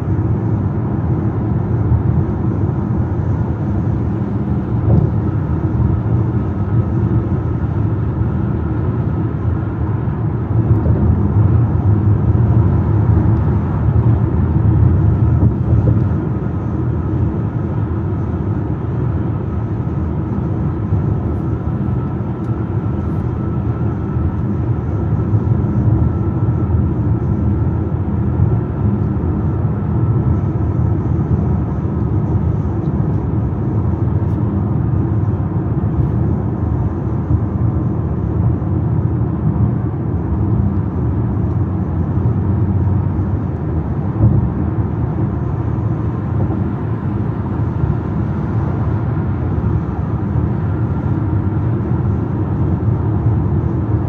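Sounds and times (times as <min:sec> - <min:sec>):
car tyres and engine rumble: 0:00.0 - 0:54.0.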